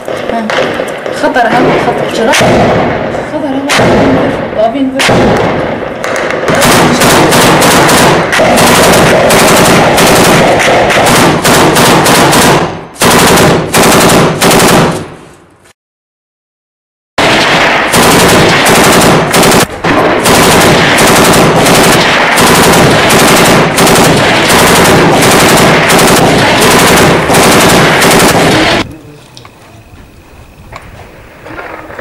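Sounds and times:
automatic gunfire: 0:00.0 - 0:03.0, 0:03.7 - 0:04.4, 0:05.0 - 0:15.2, 0:17.2 - 0:28.9.

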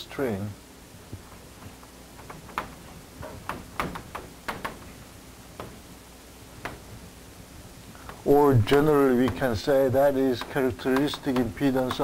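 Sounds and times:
chalk tapping and scratching: 0:08.7 - 0:12.0.

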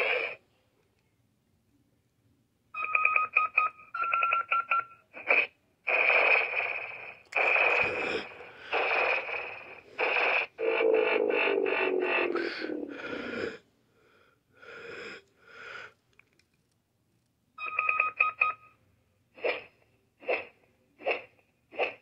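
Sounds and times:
toy electronic sound effects: 0:05.2 - 0:13.0.

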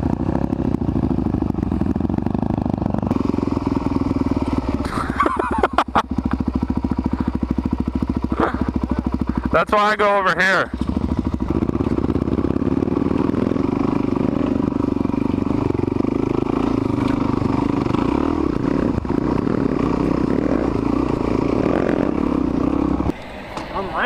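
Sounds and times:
motorcycle engine running: 0:00.0 - 0:23.2.

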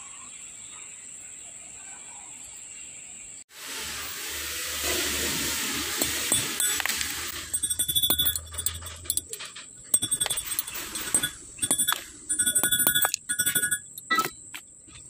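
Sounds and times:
drill bit clicking across gear teeth: 0:04.8 - 0:14.4.

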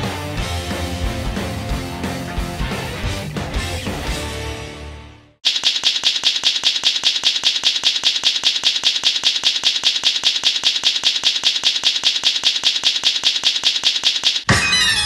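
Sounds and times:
rapid even clicking: 0:05.4 - 0:14.5.

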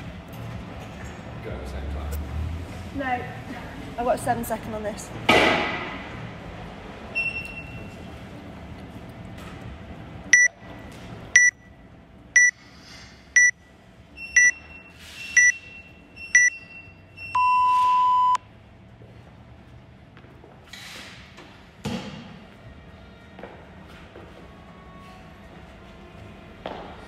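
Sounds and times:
long low timer beep: 0:16.2 - 0:18.4
short timer beeps: 0:16.2 - 0:18.4.

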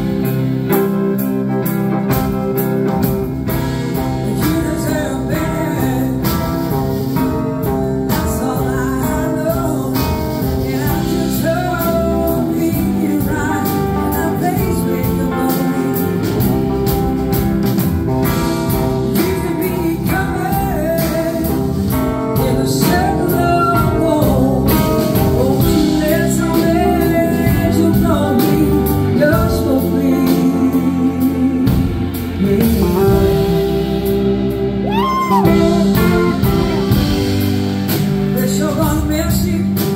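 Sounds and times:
drums: 0:00.0 - 0:39.9
electric guitars: 0:00.0 - 0:39.9
woman singing lead: 0:03.6 - 0:17.1, 0:18.7 - 0:37.5
backing singers: 0:25.2 - 0:37.6.

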